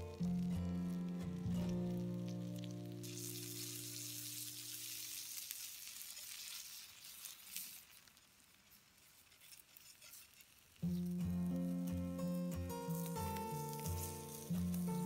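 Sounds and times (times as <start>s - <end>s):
background music: 0.0s - 4.1s, 10.8s - 15.0s
food sizzling on hot stone: 0.0s - 15.0s.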